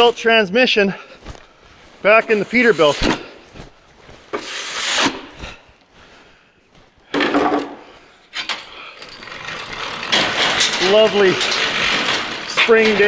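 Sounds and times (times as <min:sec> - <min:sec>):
plastic shovel scraping snow: 0:02.0 - 0:03.4, 0:04.3 - 0:05.6.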